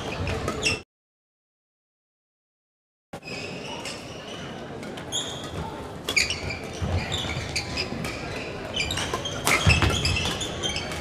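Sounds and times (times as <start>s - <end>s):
racket hitting shuttlecock: 9.0s - 11.0s.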